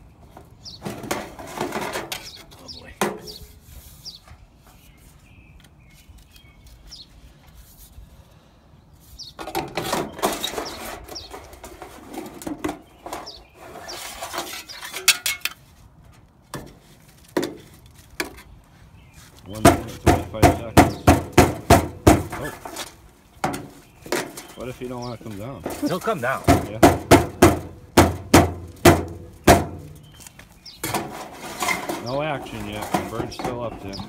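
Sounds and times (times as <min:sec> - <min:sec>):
metal strip scraping in downspout: 0:00.8 - 0:02.4, 0:09.4 - 0:15.7, 0:19.8 - 0:27.7, 0:28.7 - 0:34.0
sharp metallic knocks: 0:19.5 - 0:22.8, 0:25.7 - 0:30.1.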